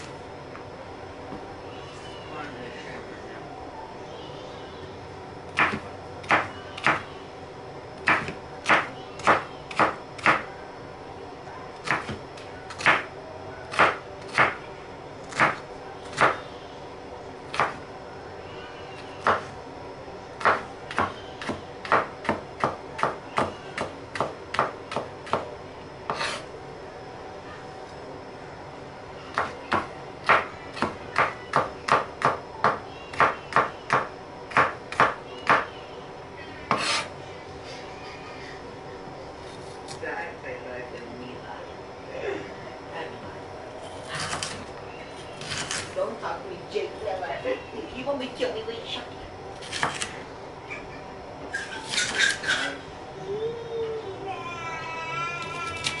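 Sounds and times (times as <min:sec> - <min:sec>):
knife chopping on wooden board: 0:36.7 - 0:37.1.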